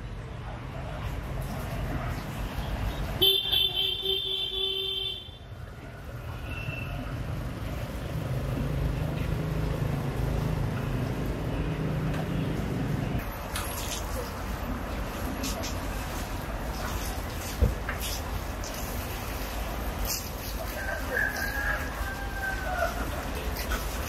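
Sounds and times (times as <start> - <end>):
road traffic rumble: 0.0 - 24.0
vehicle horn: 3.2 - 5.4.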